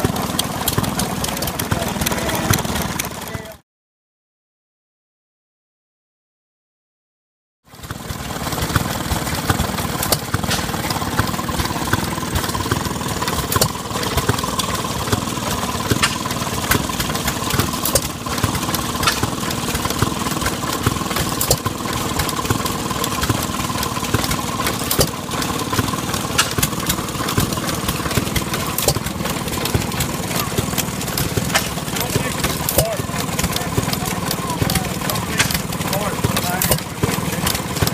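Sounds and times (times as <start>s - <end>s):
hit-and-miss engine firing bangs: 7.8s - 37.9s.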